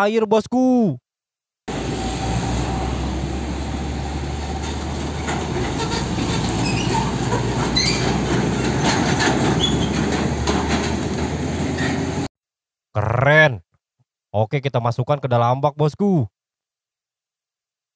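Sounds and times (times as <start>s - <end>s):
heavy trucks driving past: 1.7s - 12.3s.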